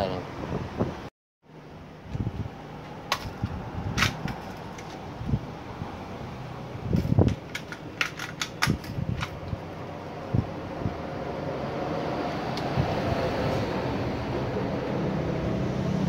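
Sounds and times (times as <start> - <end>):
pistol clicking in plastic holster: 4.0 - 5.0, 7.0 - 9.4
clicks and knocks of reholstering: 7.0 - 9.5.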